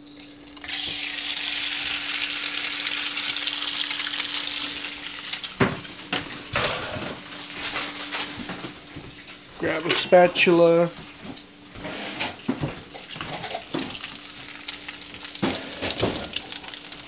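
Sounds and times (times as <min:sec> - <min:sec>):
egg sizzling in grease: 0:00.0 - 0:06.6, 0:12.4 - 0:17.0.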